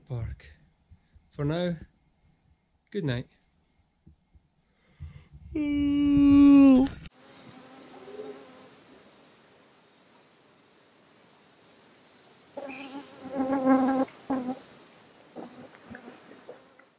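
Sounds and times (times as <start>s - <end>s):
insect chirping: 7.1s - 16.6s
pitched animal call: 12.5s - 16.8s.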